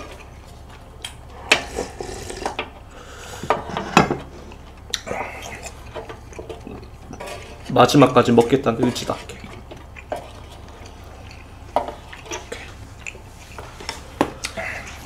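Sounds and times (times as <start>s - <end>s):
wooden spoon scraping a dish: 5.5s - 10.8s.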